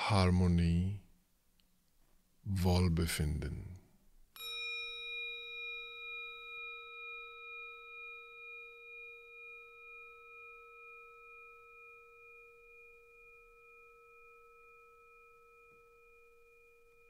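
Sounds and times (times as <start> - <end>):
struck metal bell ringing: 4.4 - 17.0.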